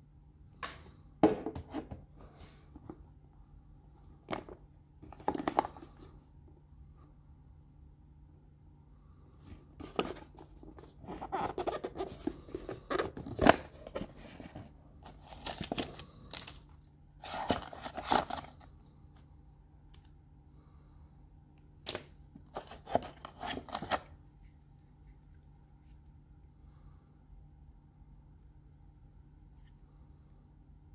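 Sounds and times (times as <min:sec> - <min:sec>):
cardboard packaging rustling: 0:09.8 - 0:18.7, 0:22.4 - 0:24.1.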